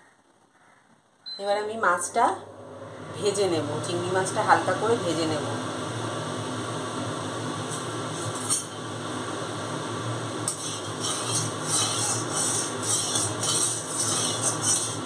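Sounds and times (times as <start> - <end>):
metal spatula scraping a pan: 8.2 - 8.8, 10.5 - 15.0
hot oil hissing: 10.4 - 15.0.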